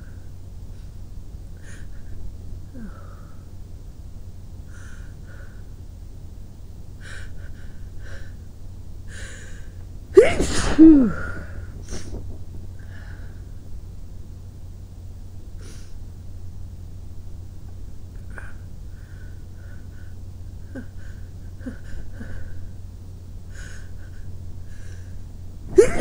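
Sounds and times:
loud voiced sneeze: 0:10.2 - 0:11.4.

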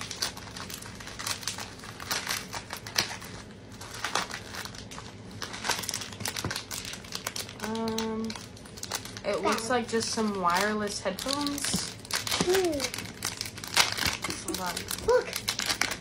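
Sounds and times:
plastic packaging crinkling: 0:00.0 - 0:16.0.

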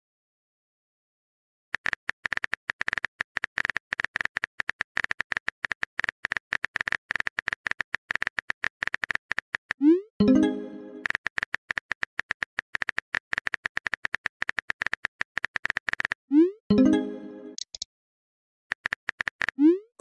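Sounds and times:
phone keyboard typing clicks: 0:01.8 - 0:09.8, 0:10.9 - 0:16.2.

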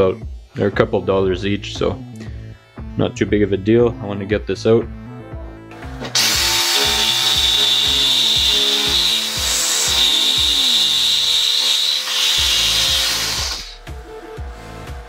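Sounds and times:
reciprocating saw cutting metal: 0:05.8 - 0:15.0.

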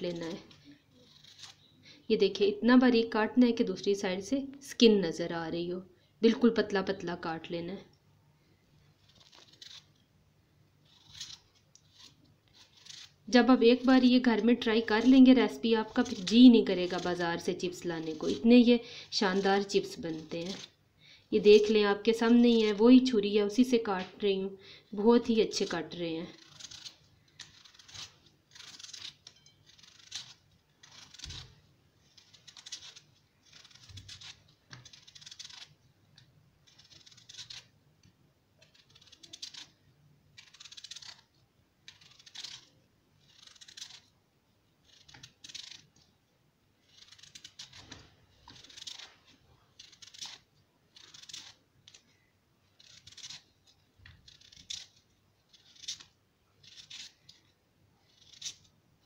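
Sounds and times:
knife slicing potato: 0:00.0 - 0:01.7, 0:09.0 - 0:10.0, 0:10.8 - 0:20.8, 0:21.4 - 0:23.6, 0:25.2 - 0:35.8, 0:36.6 - 0:37.8, 0:38.6 - 0:44.1, 0:44.8 - 0:46.0, 0:46.8 - 0:52.1, 0:52.7 - 0:57.5, 0:58.1 - 0:58.7.

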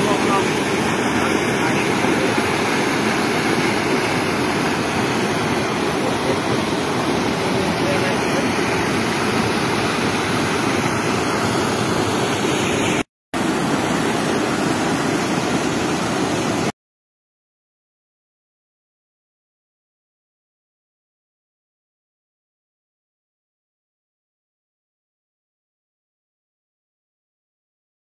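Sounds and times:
floodwater rushing over weir: 0:00.0 - 0:16.7.

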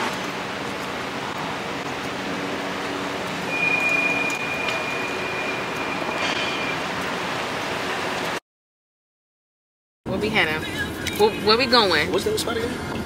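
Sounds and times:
city street traffic: 0:00.0 - 0:08.4, 0:10.1 - 0:13.0
high steady squeal: 0:03.4 - 0:08.0.

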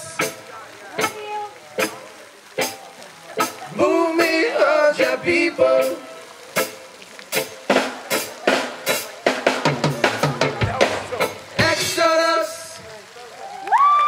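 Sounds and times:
drum fill on snare and drums: 0:07.4 - 0:12.4.

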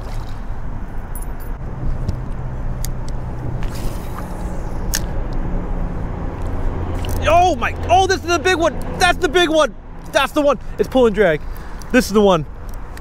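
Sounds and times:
low rushing noise: 0:01.6 - 0:11.5.

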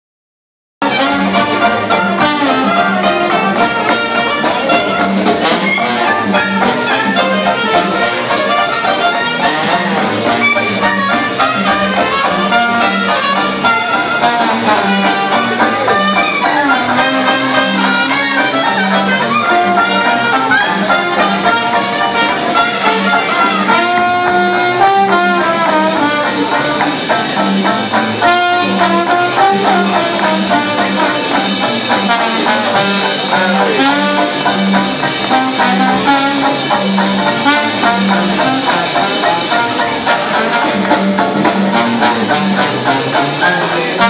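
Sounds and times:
brass horns melody: 0:00.8 - 0:44.0
live jazz band playing: 0:00.8 - 0:44.0
steady bass beat: 0:22.5 - 0:44.0.

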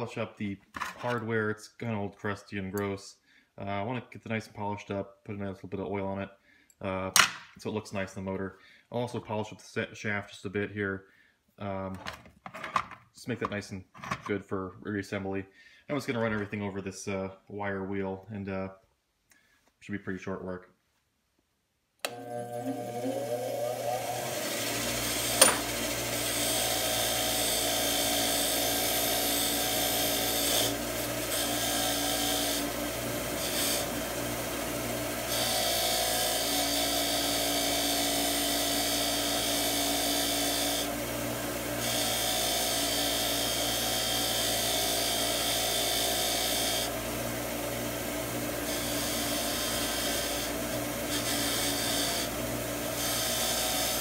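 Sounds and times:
wire wheel grinder running: 0:22.1 - 0:54.0.

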